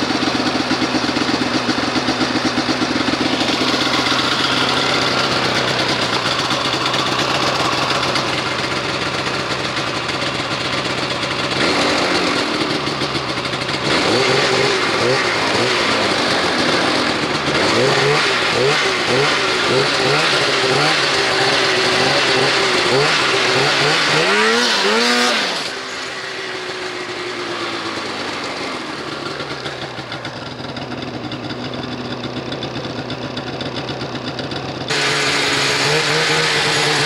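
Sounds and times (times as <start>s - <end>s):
snowmobile engine revving: 2.2s - 9.2s, 11.3s - 30.1s, 34.9s - 37.0s.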